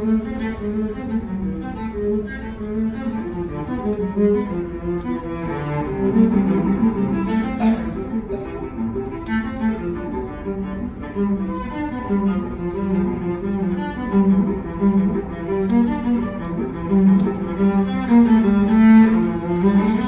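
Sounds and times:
bowed cello: 0:00.0 - 0:20.0.

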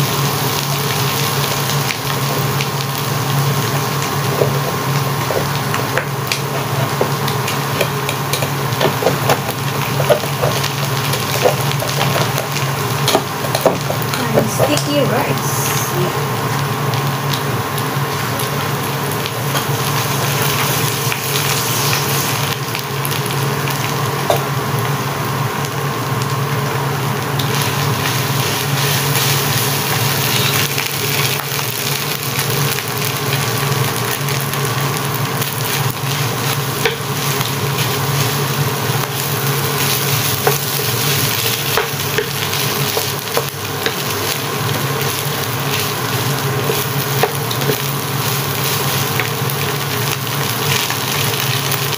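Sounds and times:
rice sizzling in a frying pan: 0:00.0 - 0:51.9.

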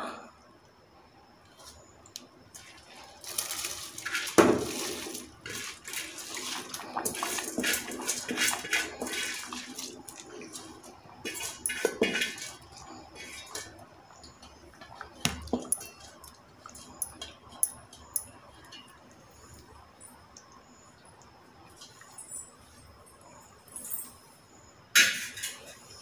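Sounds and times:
boiling liquid popping: 0:02.1 - 0:23.0
rice pouring into water: 0:02.6 - 0:12.6.

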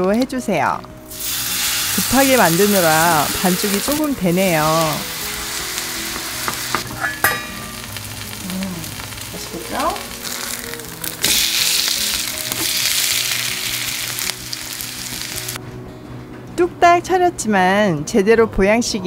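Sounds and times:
pancakes sizzling in oil: 0:01.1 - 0:15.6.

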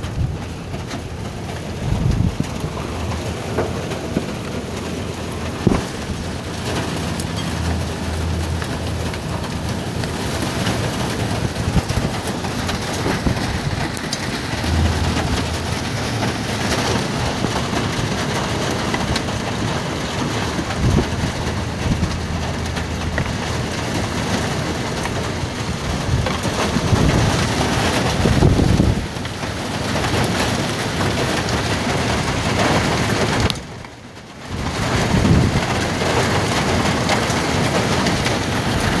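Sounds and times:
low rumble: 0:00.0 - 0:27.5
hailstones clattering: 0:00.0 - 0:39.0.

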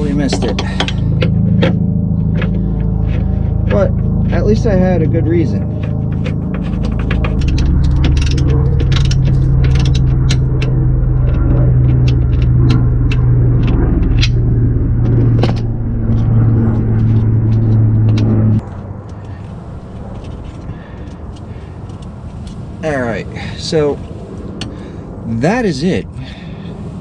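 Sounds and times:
loud steady low hum: 0:00.0 - 0:27.0.

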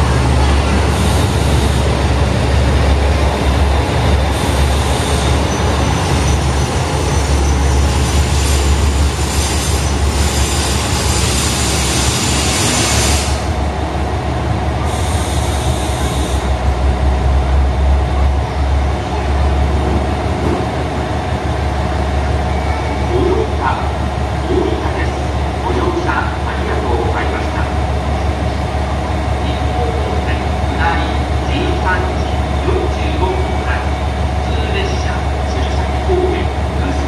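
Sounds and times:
train rumbling: 0:00.0 - 0:37.0
wheels and brakes squealing: 0:04.8 - 0:13.2.

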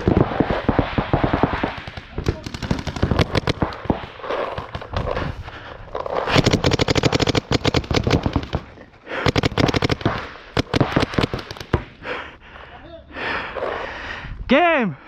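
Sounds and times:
paintball markers firing rapidly: 0:00.0 - 0:05.3, 0:06.1 - 0:11.9.

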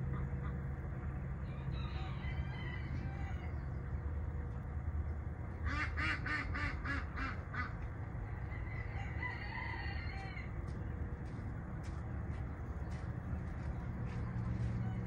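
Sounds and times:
rooster crowing: 0:01.4 - 0:03.7, 0:08.4 - 0:10.6
duck quacking: 0:05.6 - 0:07.8.

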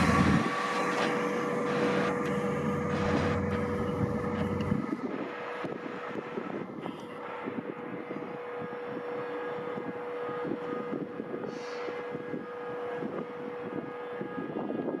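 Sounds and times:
railcar engine rumble: 0:00.0 - 0:15.0
steady whine: 0:00.0 - 0:15.0.

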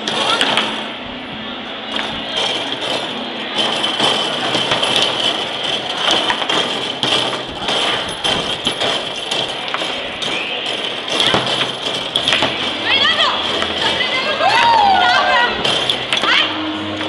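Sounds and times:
foosball ball clacking: 0:01.9 - 0:14.0.

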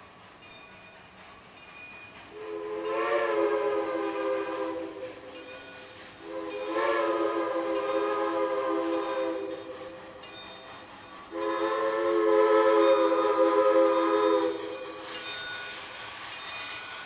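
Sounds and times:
steam locomotive whistle: 0:02.3 - 0:15.8.

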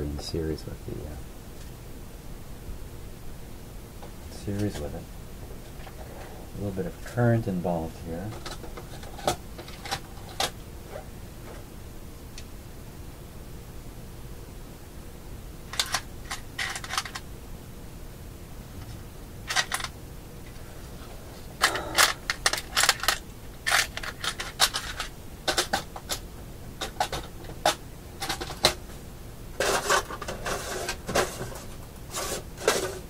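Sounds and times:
electronic parts rattling: 0:08.2 - 0:10.6, 0:15.7 - 0:17.3, 0:18.8 - 0:20.6, 0:21.5 - 0:26.2, 0:26.8 - 0:28.9, 0:29.6 - 0:33.0.

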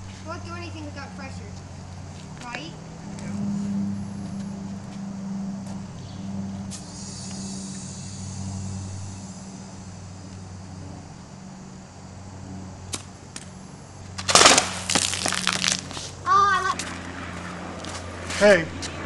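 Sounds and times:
water rocket launching: 0:14.2 - 0:16.1.

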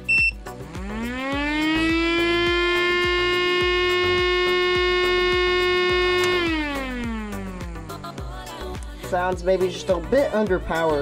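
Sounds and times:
short beep: 0:00.0 - 0:00.4
miniature siren winding up: 0:00.1 - 0:07.8.

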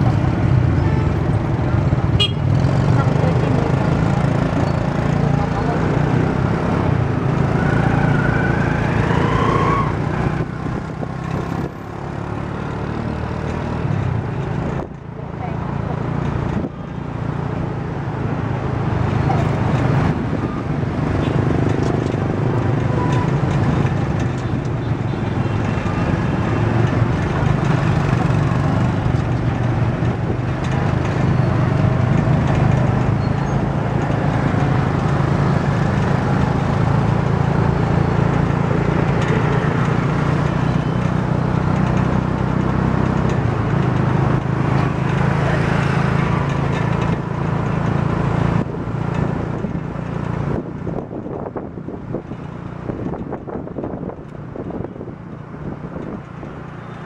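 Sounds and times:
road and traffic noise: 0:00.0 - 0:57.0
wind noise: 0:48.6 - 0:56.7.

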